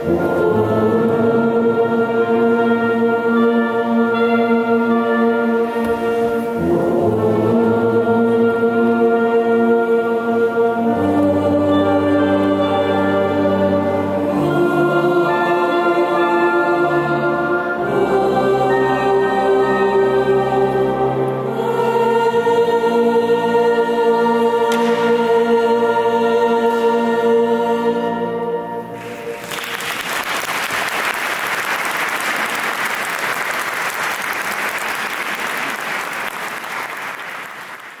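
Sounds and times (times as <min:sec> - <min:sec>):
wind band playing sustained chords: 0:00.0 - 0:30.0
audience applause: 0:29.0 - 0:38.0.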